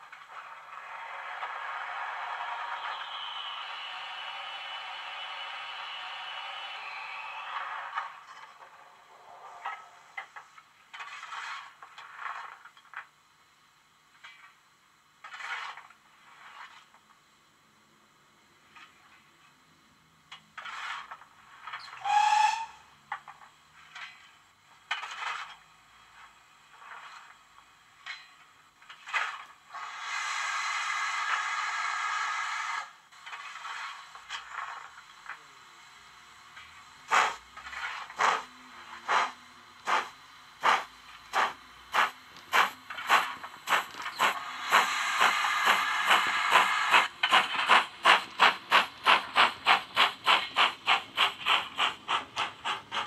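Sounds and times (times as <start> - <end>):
steam engine scraping bursts: 20.6 - 22.8, 29.0 - 34.9, 37.0 - 53.0.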